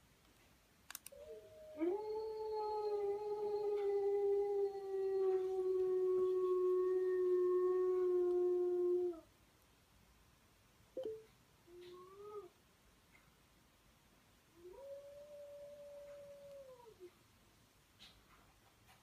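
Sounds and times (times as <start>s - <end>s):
dog howling: 1.2s - 9.2s.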